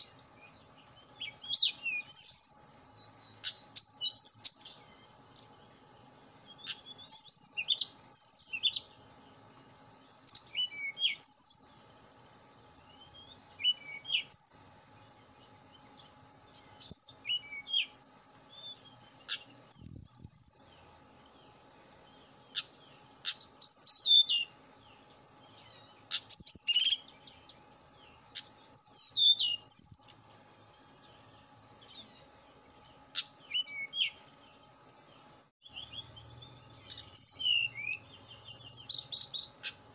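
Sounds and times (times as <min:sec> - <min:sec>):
bird singing whistled phrases: 0:00.0 - 0:05.0, 0:06.5 - 0:08.9, 0:10.2 - 0:11.7, 0:12.9 - 0:14.6, 0:16.6 - 0:20.6, 0:22.6 - 0:24.5, 0:25.4 - 0:27.4, 0:28.4 - 0:30.1, 0:33.2 - 0:34.2, 0:35.6 - 0:39.8.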